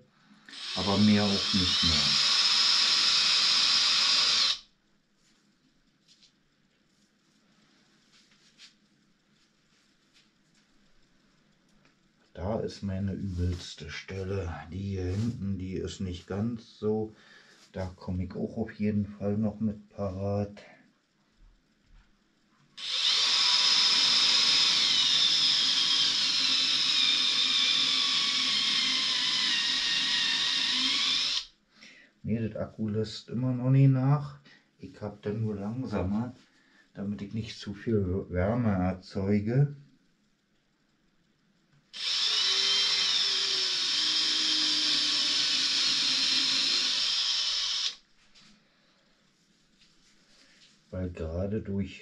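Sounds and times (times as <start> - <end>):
rotary tool high-pitched whine: 0.5 - 4.7, 22.8 - 31.5, 42.0 - 48.0.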